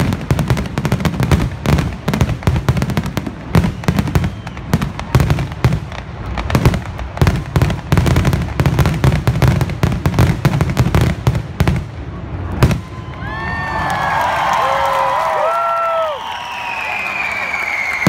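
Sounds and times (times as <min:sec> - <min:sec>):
fireworks bursting: 0:00.0 - 0:13.2.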